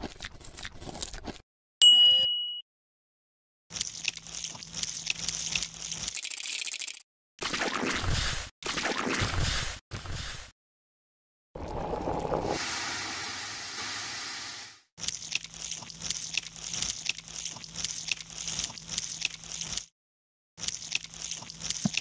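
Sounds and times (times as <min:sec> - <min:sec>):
crackling squishing noise: 0:03.7 - 0:06.2, 0:15.0 - 0:19.9, 0:20.6 - 0:22.0
steady hissing gush: 0:12.5 - 0:14.8.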